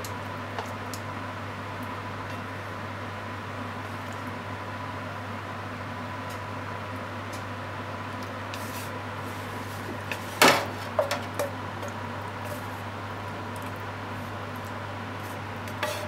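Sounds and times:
steady background hum: 0.0 - 16.0
frying pan clattering against plate: 10.4 - 11.6.

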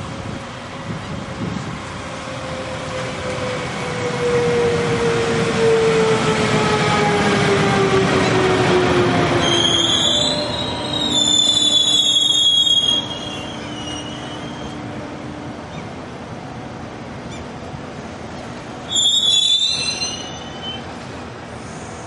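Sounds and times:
train brakes squealing: 9.4 - 14.8, 18.8 - 22.0.

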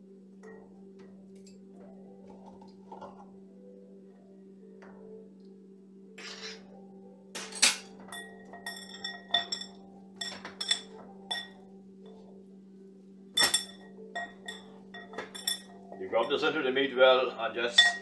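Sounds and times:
steady low hum: 0.0 - 18.0
glass bowl clinking: 7.4 - 11.7, 13.3 - 16.5, 17.7 - 18.0.

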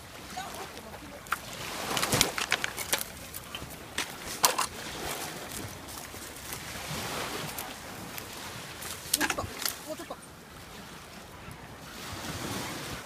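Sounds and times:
footsteps on sand: 0.0 - 10.1
small waves washing: 0.0 - 13.0.

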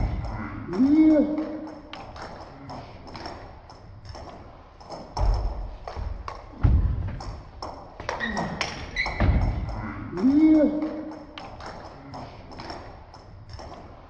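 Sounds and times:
heavy low thumps: 5.2 - 7.6, 9.2 - 10.2.

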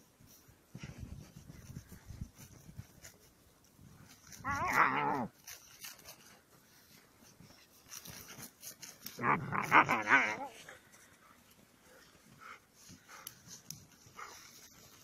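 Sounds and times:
puppy wavering vocalisations: 4.4 - 5.3, 9.2 - 10.6.

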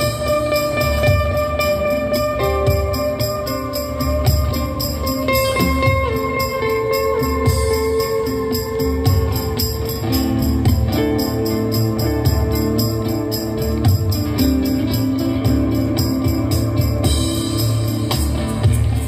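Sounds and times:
light percussion beat: 0.0 - 19.0.

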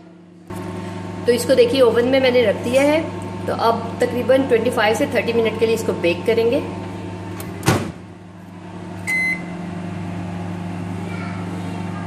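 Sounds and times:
microwave oven humming: 0.0 - 12.0
microwave clunk: 7.3 - 8.1
keypad beep: 9.0 - 9.5.

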